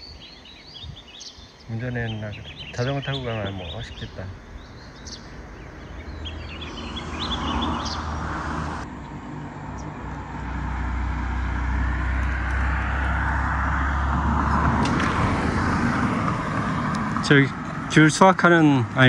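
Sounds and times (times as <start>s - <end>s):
bird chirps: 0.0s - 8.6s
road traffic passing: 0.0s - 19.0s.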